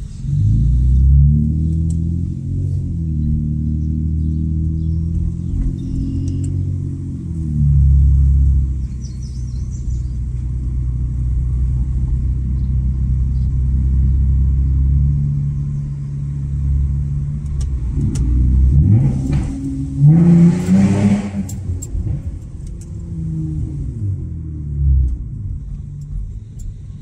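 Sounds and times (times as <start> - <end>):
car exhaust droning: 0.0 - 27.0.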